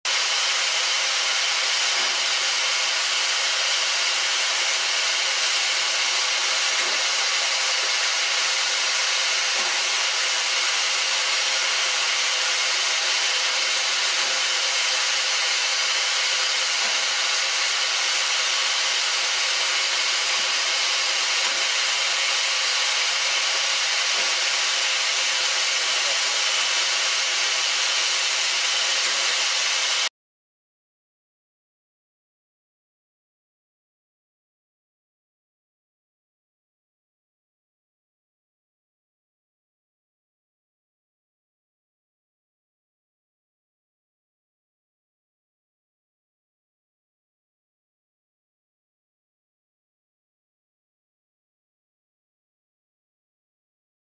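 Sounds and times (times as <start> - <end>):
steam locomotive hissing: 0.1 - 30.1.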